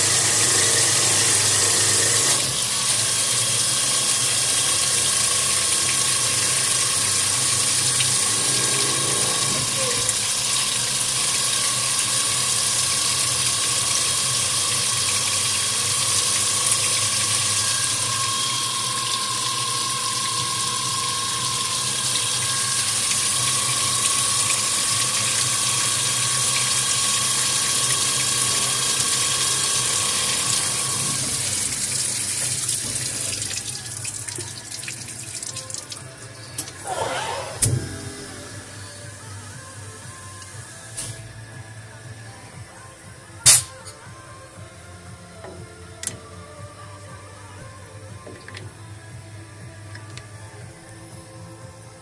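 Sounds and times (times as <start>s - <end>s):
high spindle whine: 7.2s - 12.5s, 16.8s - 34.7s, 36.0s - 43.4s
coolant spraying and splashing: 18.7s - 38.8s.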